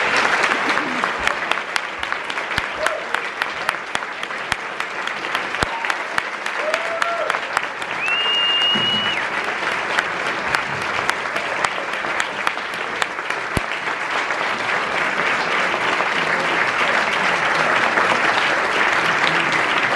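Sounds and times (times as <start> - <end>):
audience applauding: 0.0 - 19.9.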